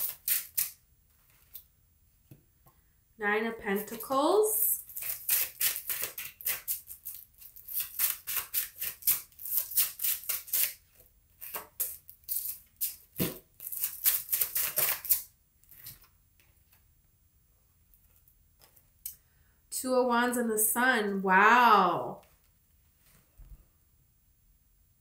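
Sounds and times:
cards shuffled by hand: 0.0 - 1.7, 4.9 - 16.1.

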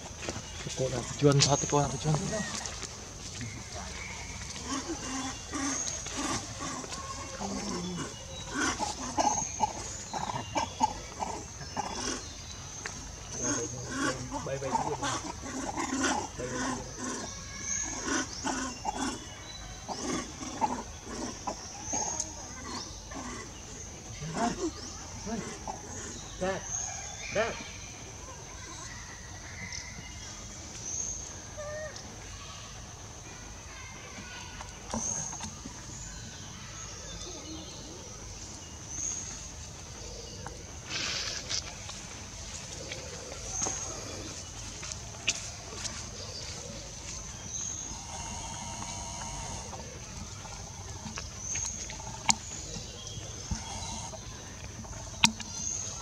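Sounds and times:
monkeys calling: 0.7 - 30.0, 31.1 - 32.9, 34.1 - 56.0
high insect drone: 40.6 - 51.2, 53.4 - 55.5.

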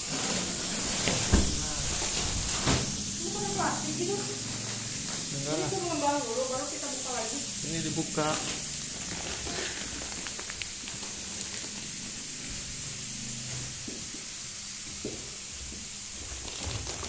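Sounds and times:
plastic crinkling: 0.0 - 12.2, 16.1 - 17.0
air hissing into plastic: 0.0 - 17.0.

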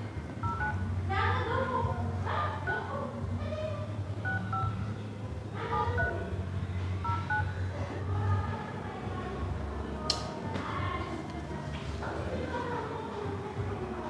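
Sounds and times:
phone keypad two-tone beeps: 0.4 - 0.8, 4.2 - 4.8, 5.8 - 6.2, 7.0 - 7.6.

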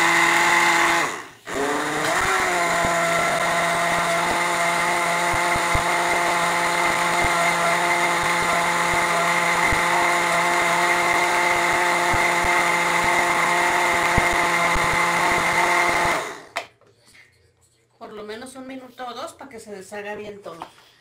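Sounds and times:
electric blender running: 0.0 - 16.6.

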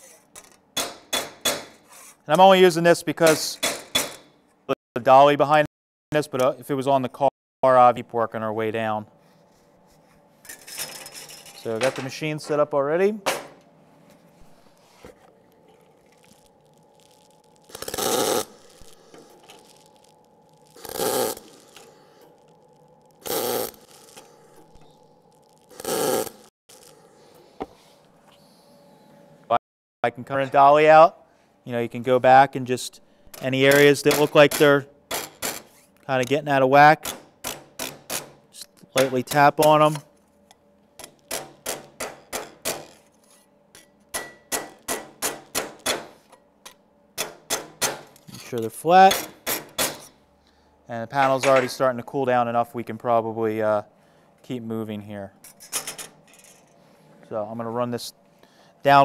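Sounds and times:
welding arc bursts: 16.3 - 27.0.

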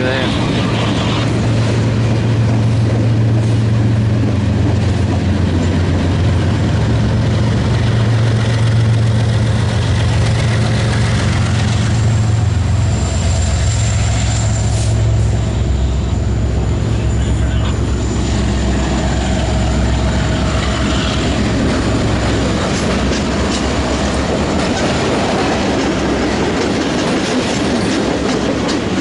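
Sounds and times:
freight train running noise: 0.0 - 29.0
locomotive engines droning: 0.0 - 29.0.

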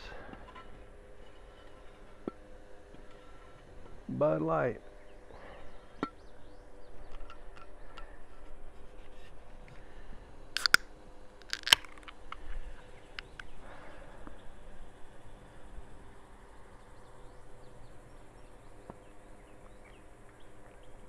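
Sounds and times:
faint steady hum: 0.0 - 21.0
beer can handled clicking: 10.6 - 10.8, 11.4 - 12.2
can cracking open snaps: 10.6 - 12.4.

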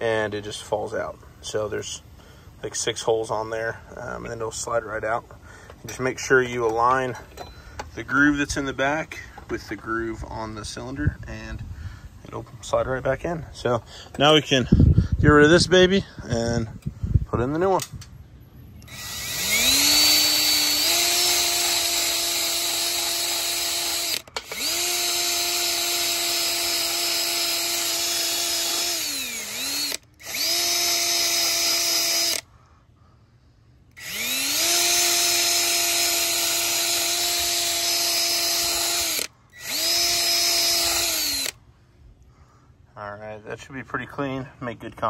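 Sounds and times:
drill wire wheel scrubbing metal: 18.8 - 32.4, 34.0 - 41.5.

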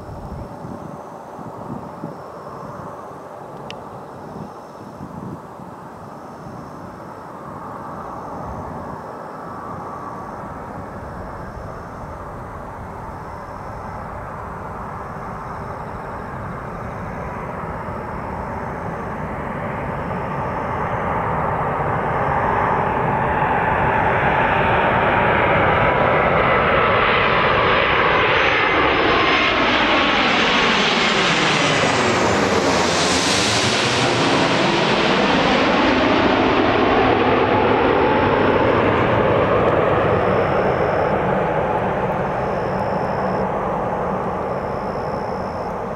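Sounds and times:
airliner jet rumble and whine: 0.0 - 45.9.

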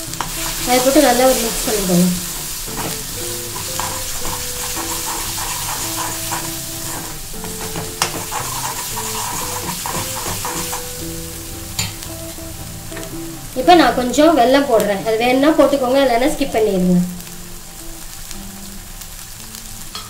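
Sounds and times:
paste sizzling in oil: 0.0 - 20.0
spatula scraping metal pan: 0.1 - 13.0.

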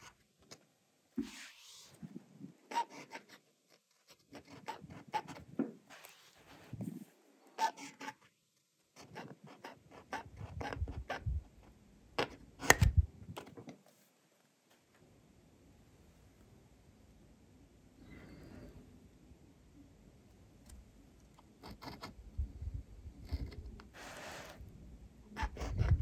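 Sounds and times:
fountain pen scratching paper: 2.7 - 6.7, 7.6 - 8.3, 8.9 - 11.2, 21.4 - 22.2, 23.2 - 24.6, 25.4 - 26.0.

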